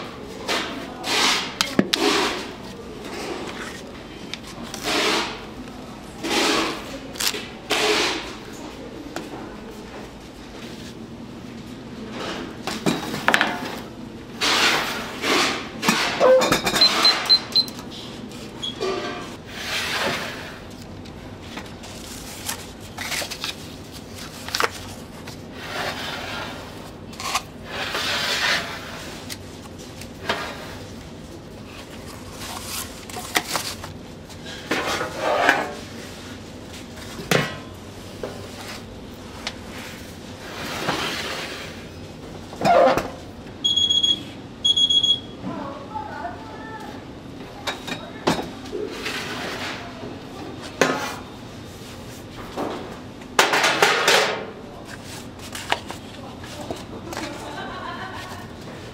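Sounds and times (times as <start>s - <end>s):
metal trays scraping and knocking: 34.5s - 35.9s.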